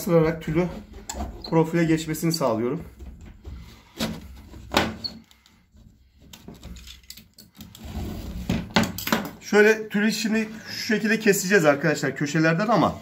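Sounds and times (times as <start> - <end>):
spline roller rolling rub: 7.7 - 8.6.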